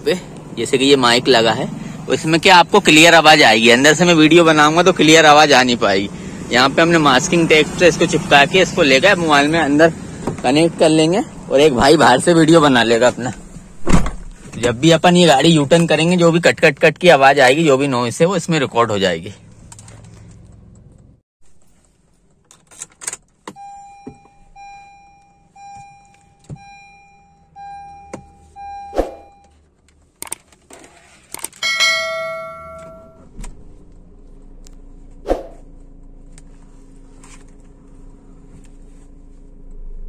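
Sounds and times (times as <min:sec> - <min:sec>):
car running with low hum: 0:00.0 - 0:40.0
electronic chime beeping: 0:23.6 - 0:29.5
scattered clicks: 0:29.8 - 0:30.7, 0:31.3 - 0:31.6
bell-like chime: 0:31.6 - 0:33.2.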